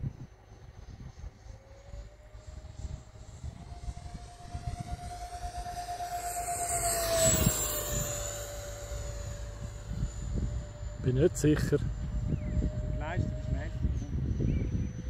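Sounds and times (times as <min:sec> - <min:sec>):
model jet turbine whining: 0:00.0 - 0:15.0.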